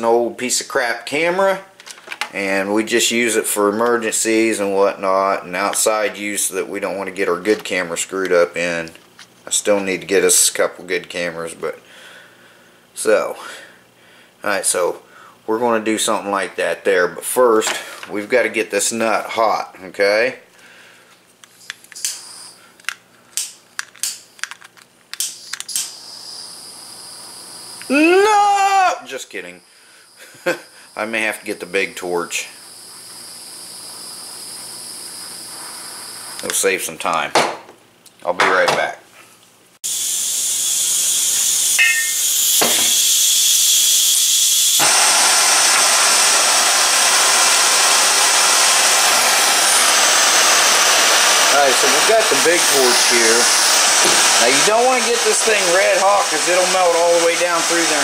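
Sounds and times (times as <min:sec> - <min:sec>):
torch flame hissing: 0:25.7 - 0:28.2, 0:30.9 - 0:36.6, 0:39.8 - 0:58.0.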